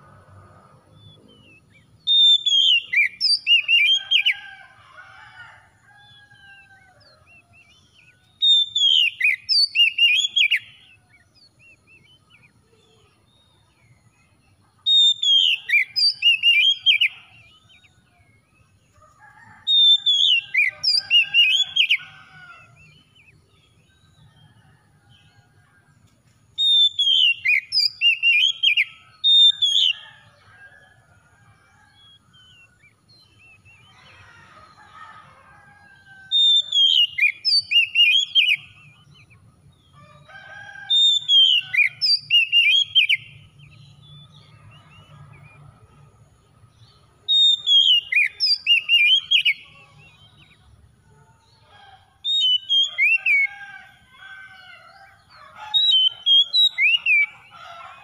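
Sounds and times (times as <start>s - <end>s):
bird whistled song: 1.0s - 4.4s, 6.4s - 10.9s, 14.9s - 17.9s, 19.7s - 22.1s, 26.6s - 30.0s, 36.4s - 39.0s, 41.0s - 43.4s, 47.3s - 50.5s, 52.3s - 53.6s, 55.8s - 57.6s.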